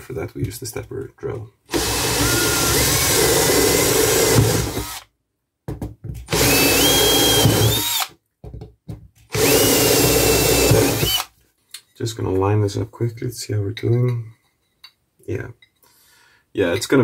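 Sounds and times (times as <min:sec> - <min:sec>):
power drill drilling into metal: 0:01.7 - 0:05.1, 0:06.3 - 0:08.1, 0:09.3 - 0:11.3.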